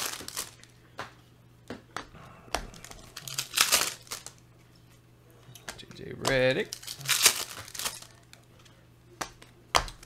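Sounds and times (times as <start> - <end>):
foil wrapper crinkling and tearing: 0.0 - 0.7, 2.8 - 4.4, 6.6 - 8.3.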